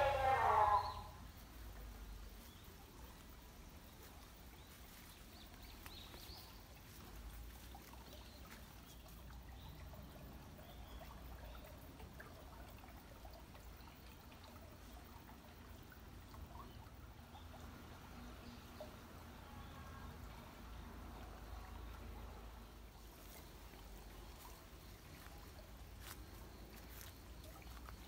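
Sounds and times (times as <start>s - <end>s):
water trickling: 0.0s - 28.0s.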